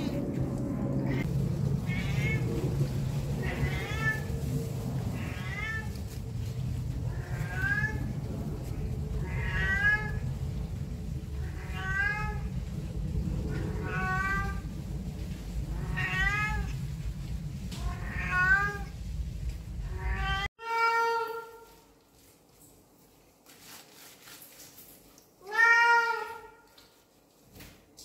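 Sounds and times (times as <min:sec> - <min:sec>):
steady low rumble: 0:00.0 - 0:20.5
cat meowing: 0:01.0 - 0:02.6, 0:03.4 - 0:04.3, 0:05.1 - 0:06.2, 0:07.1 - 0:08.2, 0:09.2 - 0:10.3, 0:11.4 - 0:12.5, 0:15.7 - 0:16.8, 0:19.8 - 0:21.6, 0:25.4 - 0:26.6.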